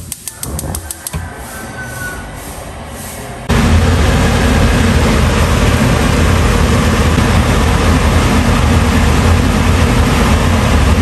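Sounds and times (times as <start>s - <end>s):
water boiling hard in a wok: 3.6s - 11.0s.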